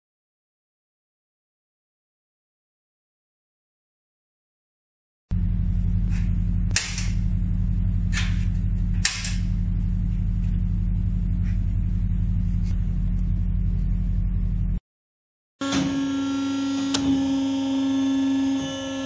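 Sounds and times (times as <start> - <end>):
steady low hum: 5.3 - 14.8.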